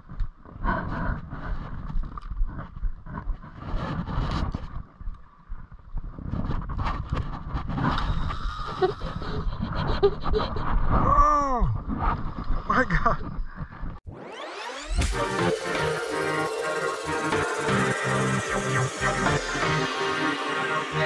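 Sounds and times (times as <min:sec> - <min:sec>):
sweeping tone bending up and down: 0:14.1 - 0:21.0.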